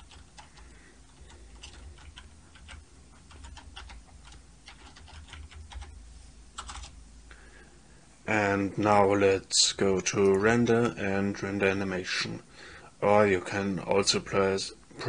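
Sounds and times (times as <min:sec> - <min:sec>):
keyboard typing: 0:00.0 - 0:06.0, 0:06.6 - 0:07.0
faint low hum: 0:00.0 - 0:15.0.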